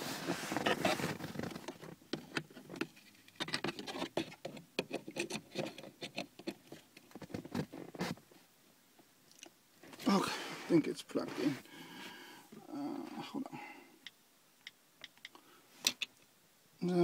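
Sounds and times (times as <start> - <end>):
rustling: 0.0 - 8.5
small clicks and knocks: 1.3 - 8.0, 14.0 - 16.3.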